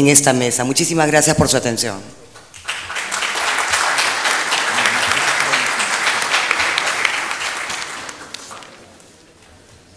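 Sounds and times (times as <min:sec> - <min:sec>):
audience applauding: 0:02.4 - 0:09.0.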